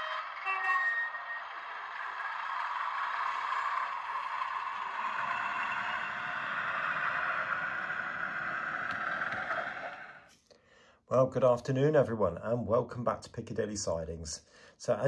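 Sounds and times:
model train rumbling on track: 0.1 - 10.3.

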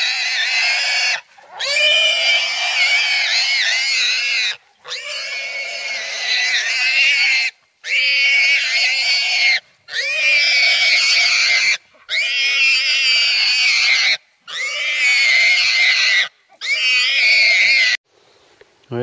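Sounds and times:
hog squealing: 0.0 - 18.0.

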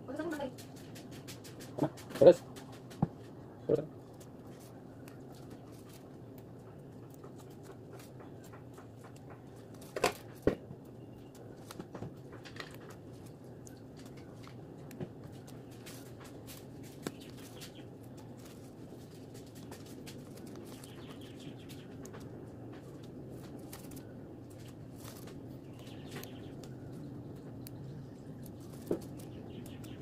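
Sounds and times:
low background noise: 0.0 - 30.0
stems snapping: 4.0 - 10.6, 11.2 - 30.0
leaves rustling: 15.4 - 22.0, 22.7 - 26.8.

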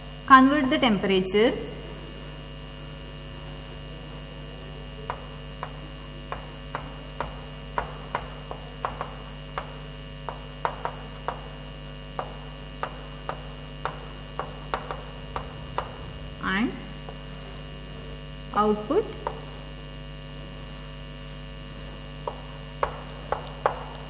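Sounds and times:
electrical hum: 0.0 - 24.0
chalk tapping on blackboard: 5.1 - 16.0, 22.2 - 24.0.

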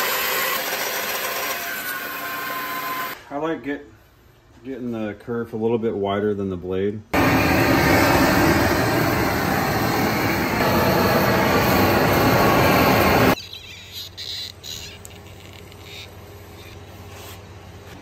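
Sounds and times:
propane torch roaring: 7.2 - 13.4.

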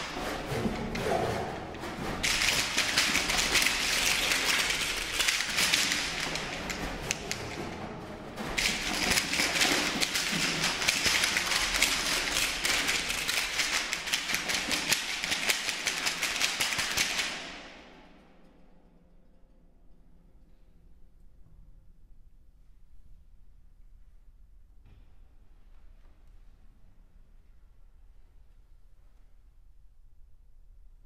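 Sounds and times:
percussion clicks and taps: 0.0 - 17.7.

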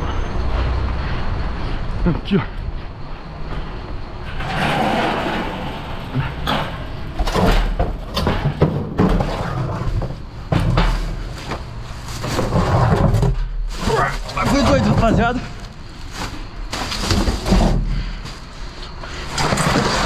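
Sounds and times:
metal gate opening: 4.2 - 7.7
plastic drum scraping and knocking: 12.2 - 13.4.

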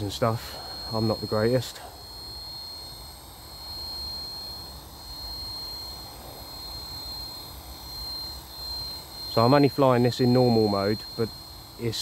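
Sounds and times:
rc helicopter whine: 0.0 - 12.0.

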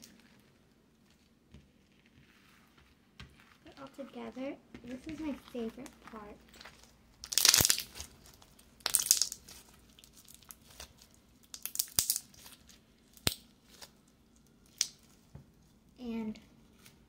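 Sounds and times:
wet slime squelches: 0.0 - 17.0
sharp slime pops: 7.3 - 8.1.

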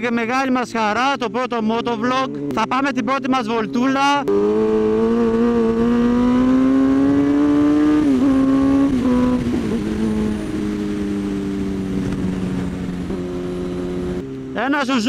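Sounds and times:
motorcycle engine running: 0.0 - 14.8
wind rushing over microphone: 4.2 - 14.2.

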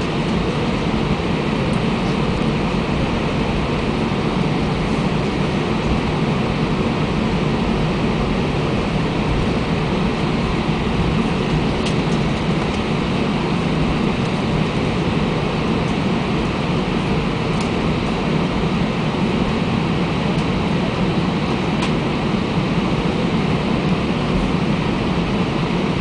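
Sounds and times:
airliner engines and wheels rumbling: 0.0 - 26.0.

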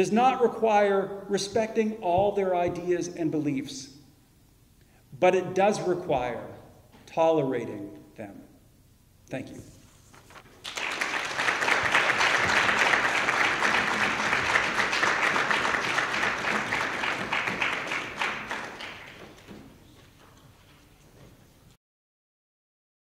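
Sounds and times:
audience applauding: 10.6 - 20.2.

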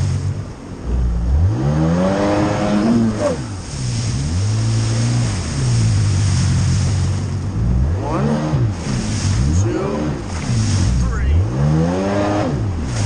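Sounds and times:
watercraft engine revving: 0.0 - 13.0
rushing water hiss: 2.3 - 11.4.

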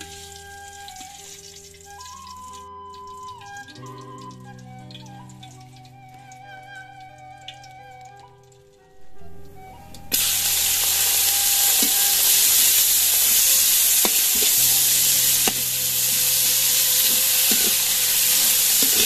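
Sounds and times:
fish sizzling in hot oil: 0.0 - 4.4, 10.1 - 19.0.

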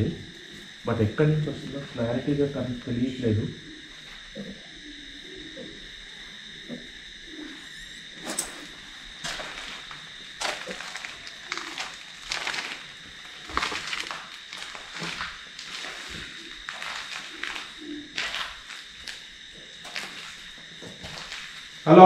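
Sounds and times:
footsteps crunching over rubble: 9.2 - 21.9.

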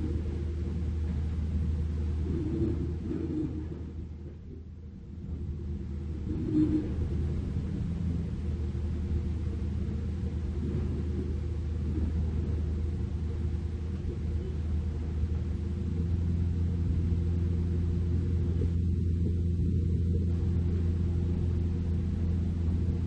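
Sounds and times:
excavator diesel engine droning: 5.1 - 23.0.

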